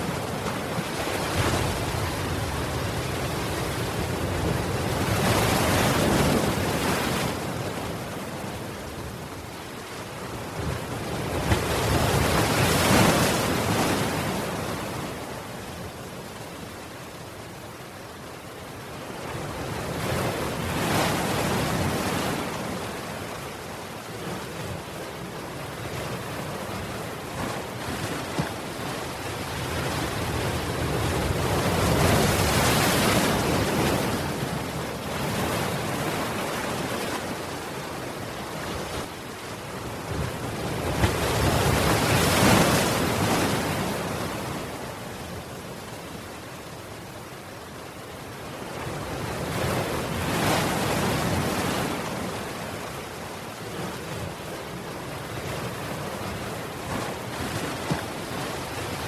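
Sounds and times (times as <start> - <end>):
waves crashing against seawall: 0.0 - 8.5, 10.5 - 15.2, 24.2 - 45.4.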